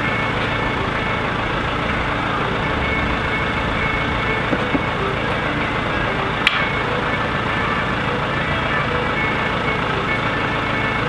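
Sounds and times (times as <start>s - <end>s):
telehandler engine running: 0.0s - 11.0s
sharp click: 6.4s - 6.8s.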